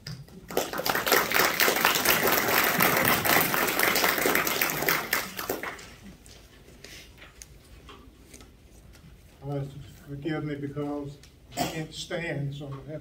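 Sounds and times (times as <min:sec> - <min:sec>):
audience applauding: 0:00.4 - 0:06.1.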